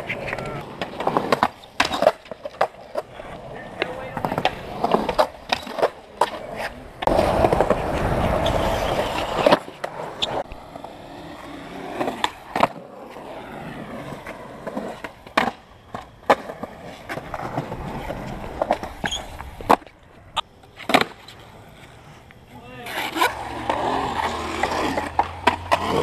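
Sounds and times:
skateboard wheels rolling: 0.0s - 26.0s
skateboards clacking on concrete: 0.0s - 26.0s.

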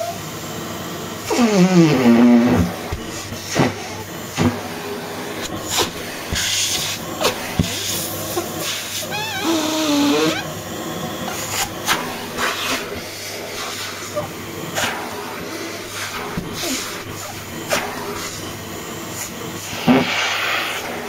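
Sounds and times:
vacuum cleaner running: 0.0s - 21.0s
short warbling squeal: 9.1s - 10.4s
brush nozzle scraping over fabric: 11.2s - 18.5s, 19.1s - 21.0s.

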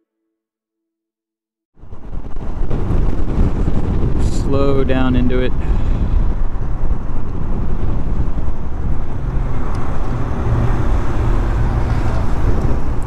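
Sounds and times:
wind on microphone: 1.8s - 13.0s.

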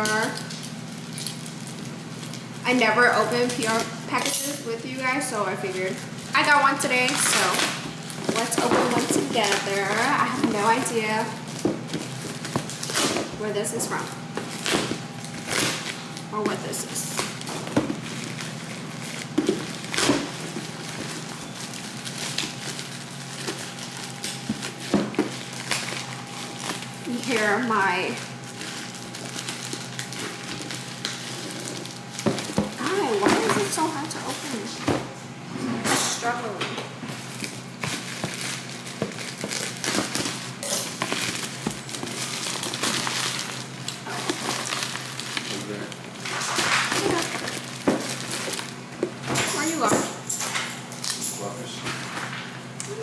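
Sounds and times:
steady low hum: 0.0s - 53.0s
packaging crinkling: 5.5s - 13.4s, 14.2s - 34.5s, 37.2s - 49.2s.

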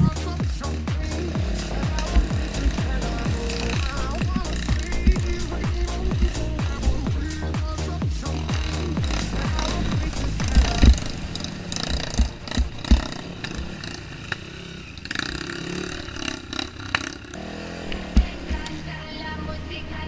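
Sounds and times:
bike knocks and thumps: 0.0s - 14.0s, 18.0s - 18.6s
dirt bike engine running: 0.0s - 20.0s.

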